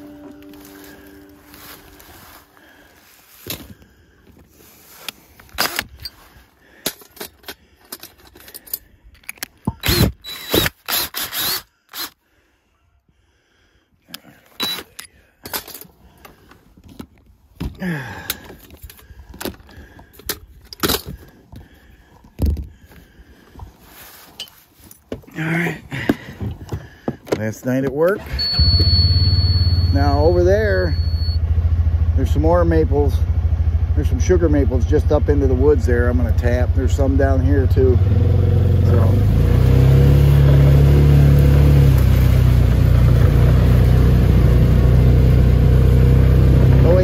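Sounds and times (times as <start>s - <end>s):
irregular clicks and rattles: 5.0s - 12.1s.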